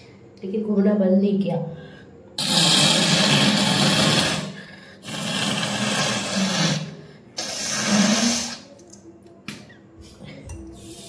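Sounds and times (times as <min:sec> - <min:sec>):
person blowing nose hard: 0:02.4 - 0:08.7.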